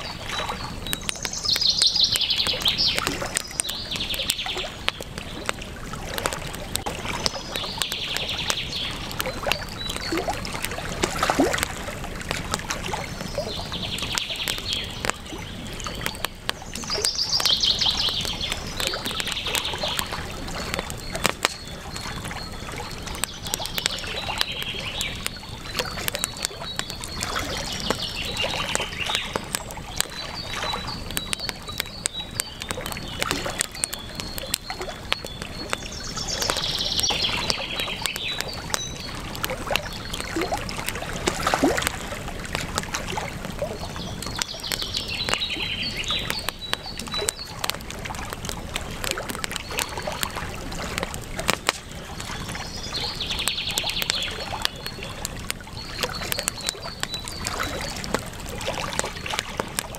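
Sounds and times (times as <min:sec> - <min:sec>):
bird chirping: 0:00.0 - 0:05.5, 0:13.0 - 0:41.4, 0:43.7 - 0:47.6, 0:51.9 - 0:58.1
campfire crackling and popping: 0:00.0 - 0:59.9.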